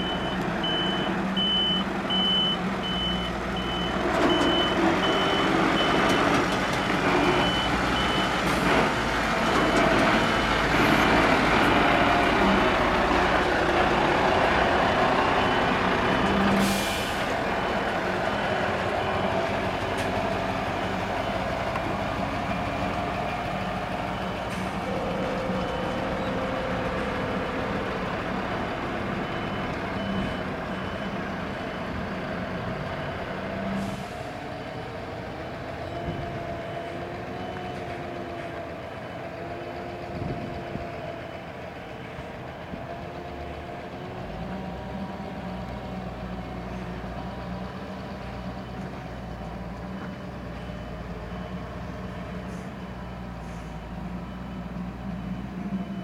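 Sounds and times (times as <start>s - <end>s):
reversing alarm beeping: 0.0s - 8.4s, 28.5s - 40.7s, 49.9s - 56.0s
diesel engine running at low revs: 0.0s - 56.0s.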